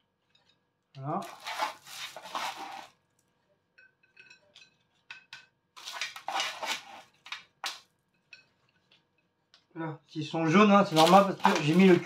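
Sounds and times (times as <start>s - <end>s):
tongs scraping a baking tray: 1.2s - 3.0s
tongs clinking on plates: 3.8s - 5.5s.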